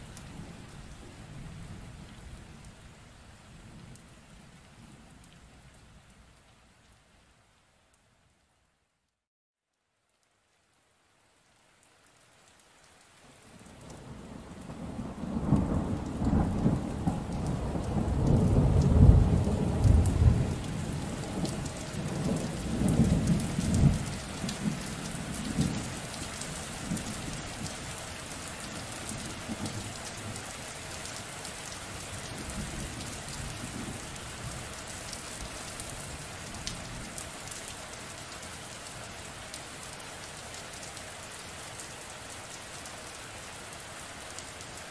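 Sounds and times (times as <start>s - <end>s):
rain falling: 0.0s - 9.2s, 9.8s - 44.9s.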